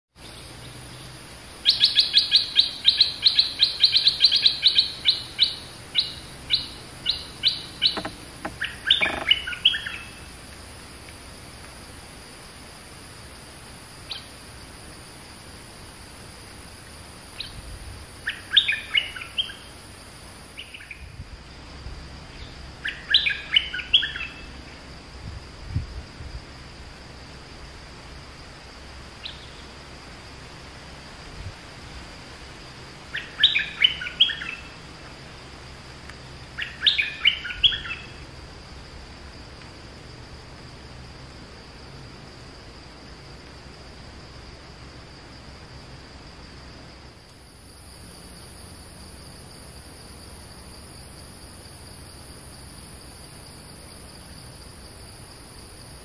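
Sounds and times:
songbird calling sharp notes: 0.2 - 10.3, 14.1 - 14.4, 18.2 - 19.8, 20.5 - 21.1, 22.3 - 24.6, 29.2 - 29.7, 33.1 - 34.8, 36.2 - 38.2.

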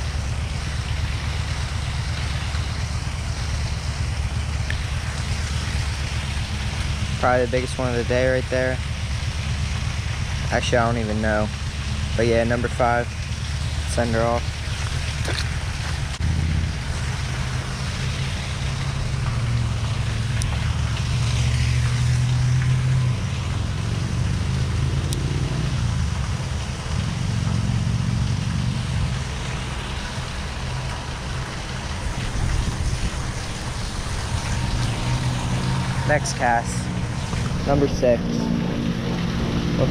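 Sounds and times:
wind buffeting microphone: 29.2 - 39.9.

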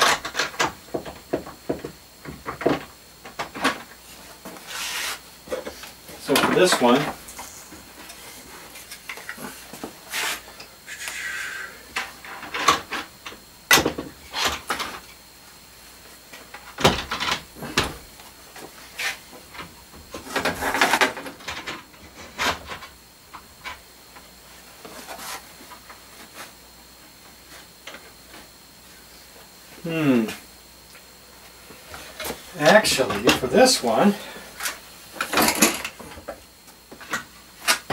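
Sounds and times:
scraping rubs: 4.6 - 5.2, 9.5 - 11.6.

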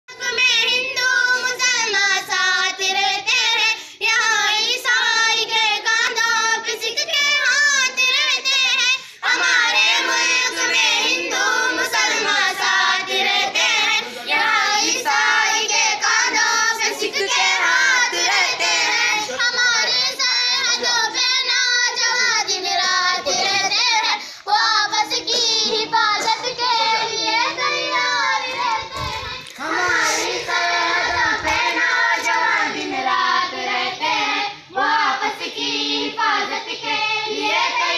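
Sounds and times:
children singing: 0.1 - 37.9.

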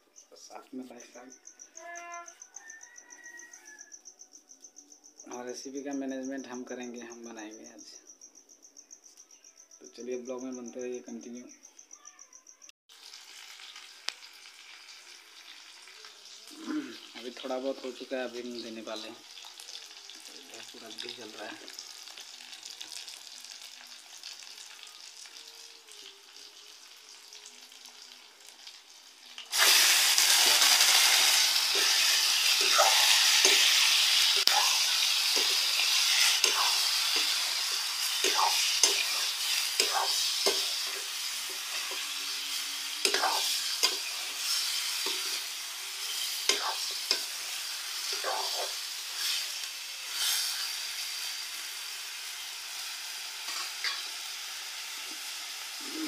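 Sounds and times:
meat sizzling in hot oil: 12.9 - 56.0
spatula scraping and stirring: 29.6 - 47.3.

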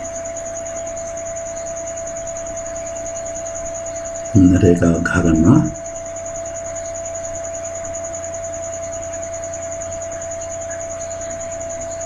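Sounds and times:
mid-pitched whine: 4.4 - 5.9.

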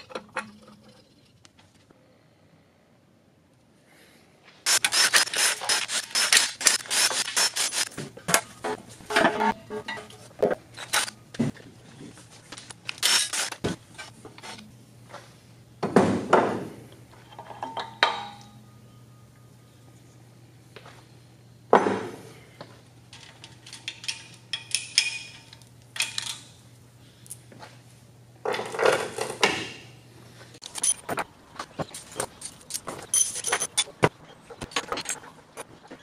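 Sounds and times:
metal engine parts clinking: 23.1 - 26.5, 30.6 - 31.1, 32.0 - 34.0.

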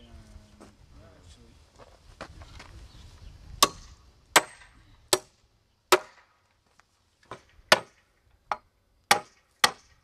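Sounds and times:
hammer driving nails into wood: 7.3 - 10.0.

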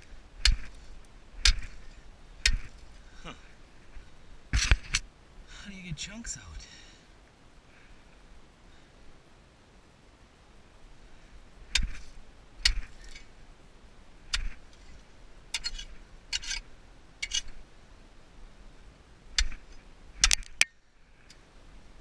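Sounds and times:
tool chipping at ice: 0.4 - 0.8, 1.4 - 1.8.

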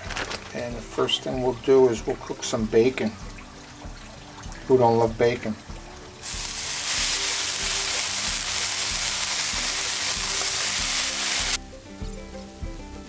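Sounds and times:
bacon sizzling on a griddle: 6.2 - 12.6.

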